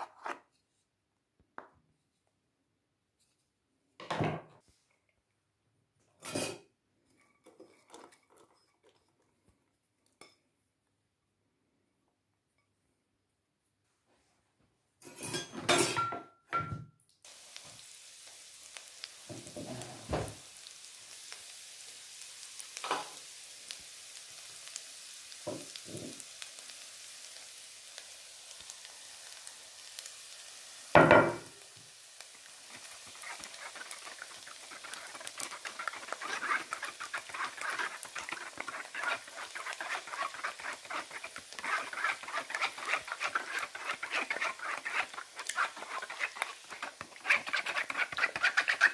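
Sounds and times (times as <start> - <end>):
plate and utensil clattering: 15.1 - 16.8
shallots sizzling in oil: 17.2 - 48.9
knocks on pan: 31.0 - 31.5
rapid crackling and scraping: 32.7 - 48.9.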